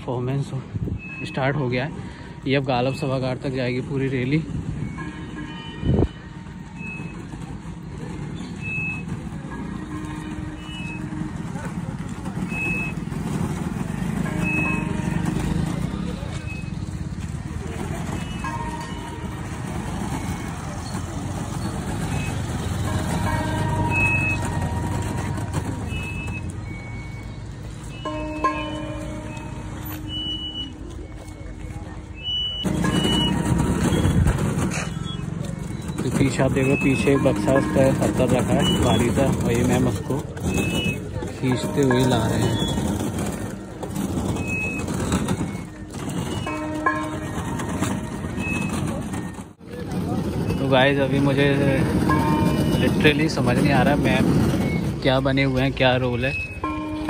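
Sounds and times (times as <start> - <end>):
vehicle engine rumble: 0.0 - 57.0
short high beeps: 25.8 - 37.5.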